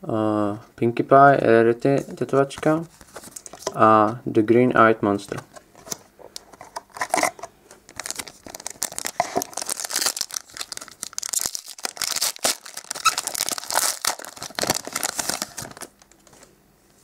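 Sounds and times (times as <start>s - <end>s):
foil wrapper crackling and ripping: 7.9s - 16.2s.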